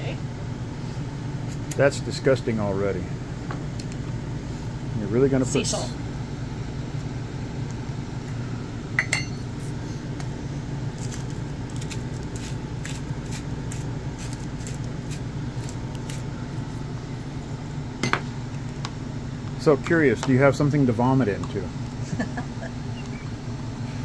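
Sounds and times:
steady low hum: 0.0 - 24.0
salt grinder crunching: 10.9 - 16.3.

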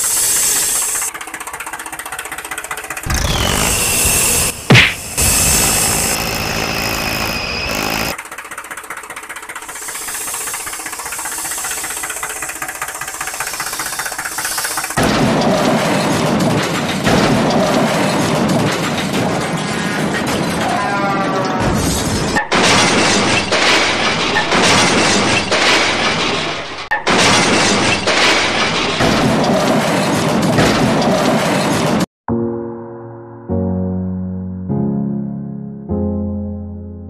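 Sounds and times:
crash and smash sound effects: 4.3 - 6.0.

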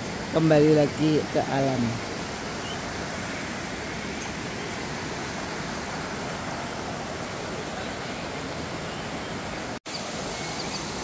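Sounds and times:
stream water running over boulders: 0.0 - 11.0.

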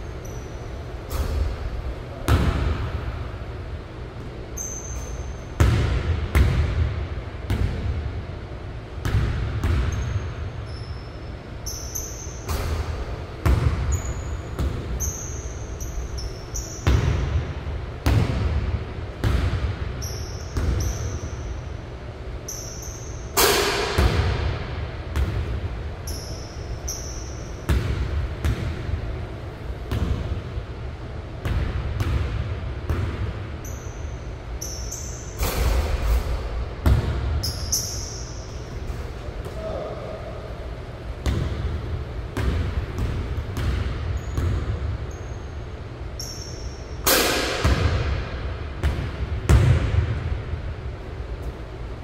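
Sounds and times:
sneaker squeaks: 0.0 - 1.7, 4.5 - 5.6, 9.6 - 17.4, 20.0 - 21.8, 22.4 - 23.8, 26.0 - 28.4, 33.6 - 36.5, 37.4 - 40.2, 43.0 - 47.1
basketball bouncing on hardwood floor: 9.0 - 10.2, 13.4 - 14.8, 31.4 - 33.3, 36.8 - 37.4, 41.2 - 41.7, 42.4 - 44.8, 48.8 - 50.1.

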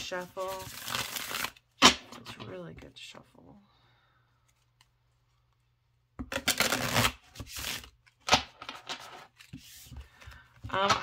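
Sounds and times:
cards shuffling: 0.0 - 2.6, 6.2 - 11.0.

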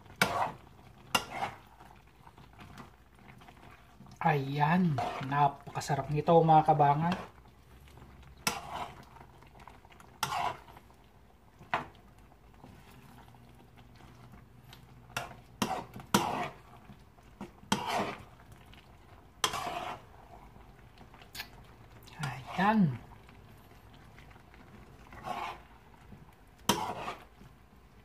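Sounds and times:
metal spoon scraping frying pan: 0.1 - 1.7, 4.5 - 6.0, 8.3 - 9.2, 10.1 - 10.9, 15.0 - 16.6, 17.4 - 18.3, 19.4 - 20.2, 25.1 - 25.7, 26.6 - 27.4.

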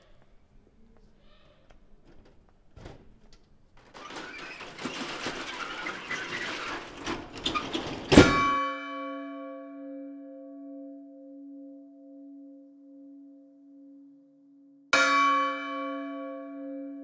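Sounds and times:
large bell ringing: 8.2 - 13.5, 15.0 - 17.0.

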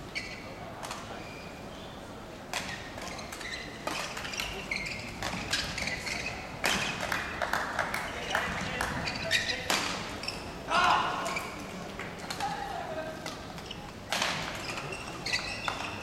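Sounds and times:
court shoes squeaking: 0.0 - 16.0
rackets hitting shuttlecock: 2.5 - 10.1, 13.2 - 16.0.

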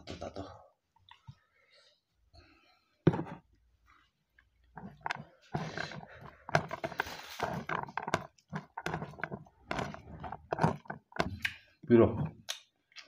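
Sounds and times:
fingers mixing food on a plate: 4.6 - 13.0
chewing and wet mouth noises: 11.3 - 11.7, 12.4 - 13.0.

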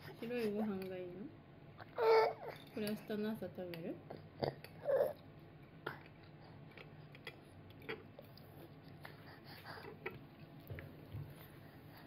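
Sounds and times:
low room hum: 0.0 - 12.0
toddler chewing: 4.1 - 11.0.

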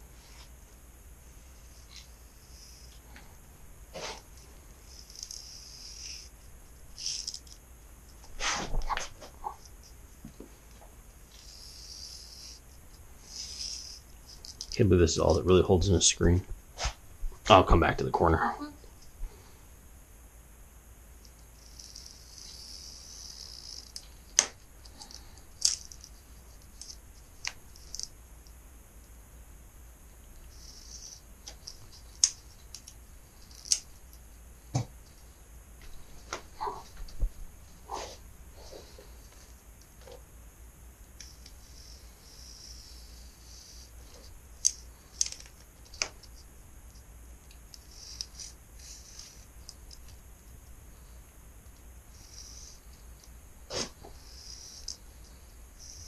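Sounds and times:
spline roller rasping hiss: 3.9 - 6.4, 8.3 - 8.8, 11.3 - 15.3, 41.2 - 45.2, 47.8 - 49.6, 52.1 - 56.0.

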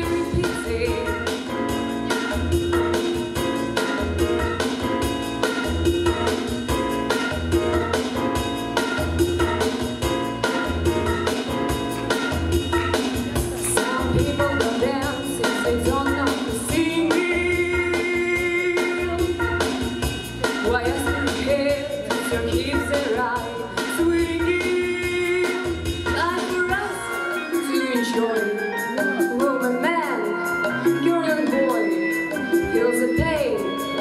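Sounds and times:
girl singing into microphone: 0.0 - 1.1, 13.6 - 19.9
pop backing track with drums: 0.0 - 34.0.

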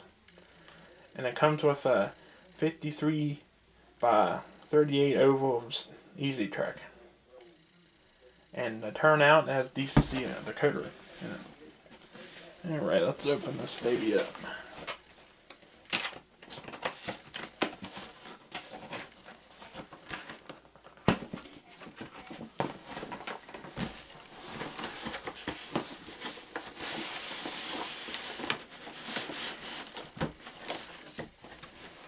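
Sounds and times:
cardboard rustling and scraping: 9.9 - 15.2, 16.5 - 32.0.

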